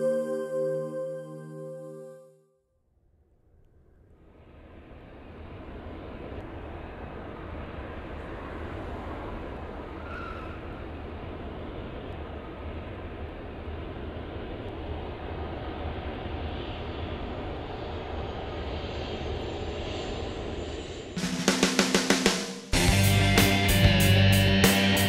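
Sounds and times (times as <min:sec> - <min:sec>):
jet engines roaring: 0:10.6 - 0:22.2
rock music hits: 0:21.2 - 0:25.0.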